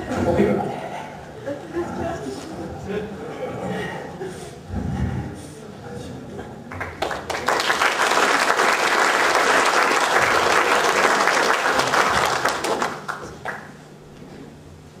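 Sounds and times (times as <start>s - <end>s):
audience applauding: 6.7s - 13.8s.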